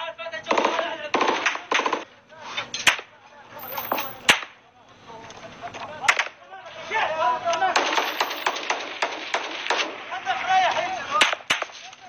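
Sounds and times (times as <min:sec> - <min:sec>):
sharp gunshots: 0:07.8 - 0:10.1.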